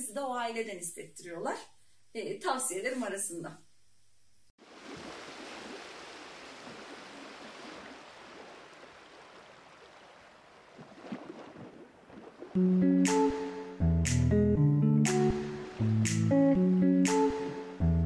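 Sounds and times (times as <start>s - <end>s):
wind: 4.6s - 12.6s
acoustic guitar music: 12.6s - 18.0s
surf: 15.0s - 17.7s.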